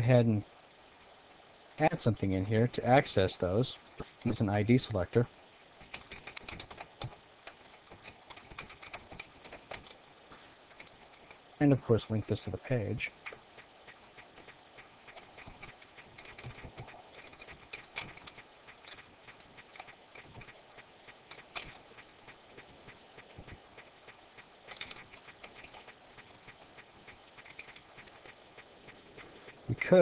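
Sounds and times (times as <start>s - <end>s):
keyboard typing: 5.8s - 10.0s, 13.2s - 30.0s.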